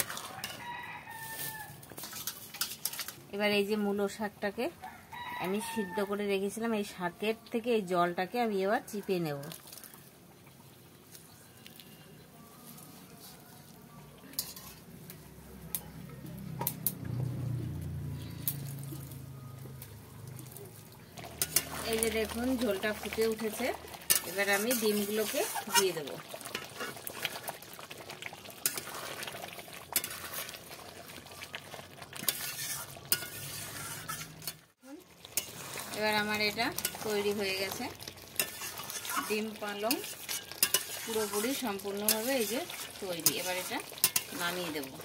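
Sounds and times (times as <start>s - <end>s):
metal spatula clinking on pan: 14.4s - 14.8s, 21.3s - 21.8s, 24.1s - 25.9s, 33.1s - 33.4s, 38.4s - 42.5s, 43.2s - 44.4s
metal bowls clinking: 18.3s - 27.0s, 35.3s - 45.0s
gravy bubbling: 20.2s - 34.1s, 34.8s - 45.0s.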